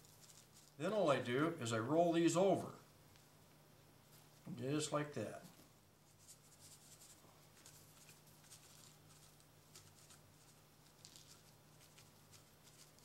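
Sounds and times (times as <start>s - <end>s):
faint low hum: 0.0s - 13.0s
plastic shaker bottle rustling: 6.2s - 13.0s.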